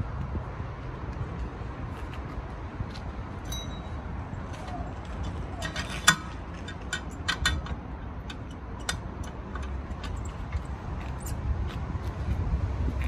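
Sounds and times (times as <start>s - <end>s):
metal bike rack clicks and knocks: 5.2s - 10.6s.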